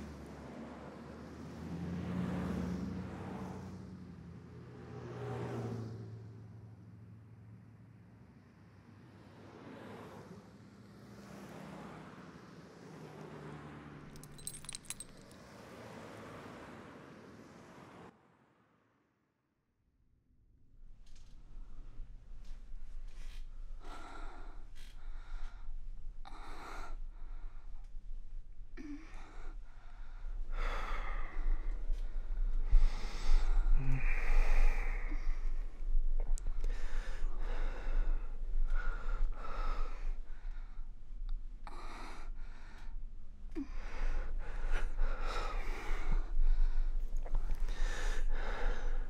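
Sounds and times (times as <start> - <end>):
heavy breathing with gasps: 28.8 - 41.0, 41.6 - 49.0.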